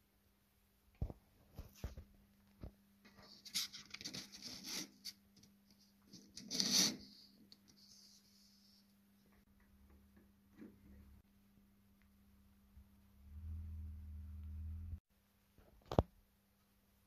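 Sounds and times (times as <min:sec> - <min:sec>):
paper rustling: 0:03.1 - 0:08.6
faint low hum: 0:07.1 - 0:17.0.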